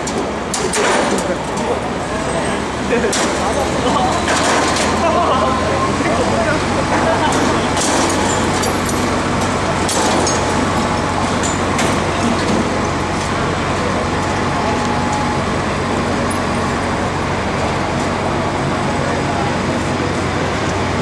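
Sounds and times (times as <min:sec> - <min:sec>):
crane diesel engine drone: 0:00.0 - 0:21.0
street traffic noise: 0:00.0 - 0:21.0.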